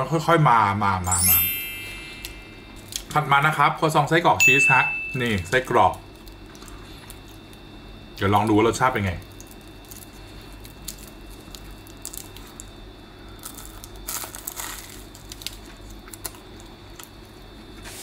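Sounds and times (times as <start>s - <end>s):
crunchy bite: 13.4s - 16.4s.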